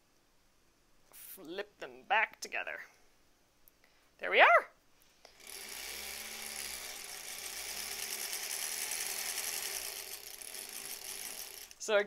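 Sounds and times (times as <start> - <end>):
sewing machine stitching: 5.3 - 12.0.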